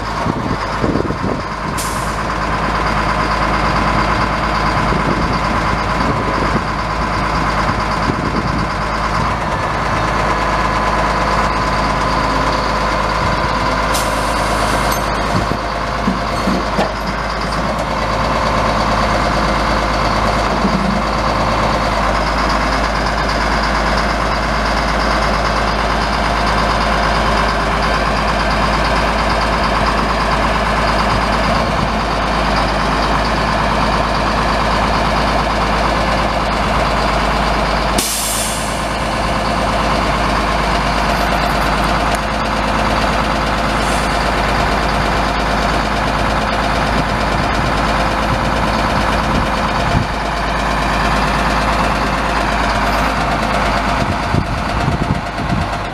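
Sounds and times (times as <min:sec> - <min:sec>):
diesel engine running: 0:00.0 - 0:55.9
air brake hiss: 0:01.8 - 0:02.2, 0:13.9 - 0:14.9, 0:38.0 - 0:38.8.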